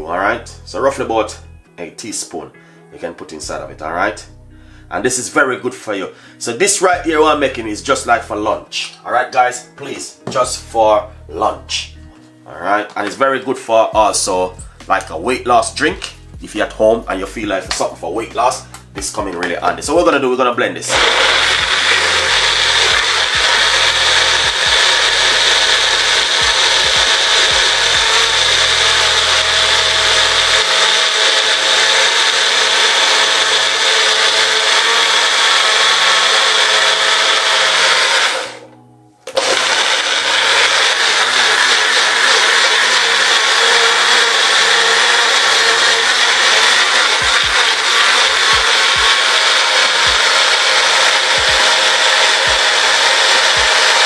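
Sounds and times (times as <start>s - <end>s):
electric blender running: 20.9s - 38.7s, 39.3s - 54.0s.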